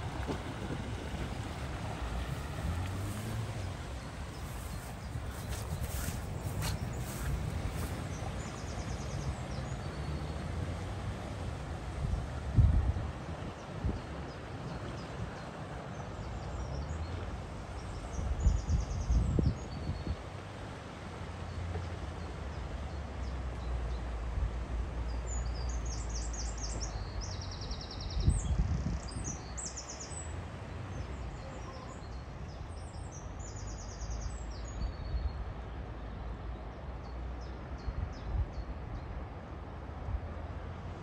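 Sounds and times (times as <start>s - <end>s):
wind buffet on microphone: 0.0s - 10.0s, 11.8s - 15.4s, 17.8s - 20.3s, 28.0s - 29.6s
outdoor rush with low rumble: 0.0s - 20.0s.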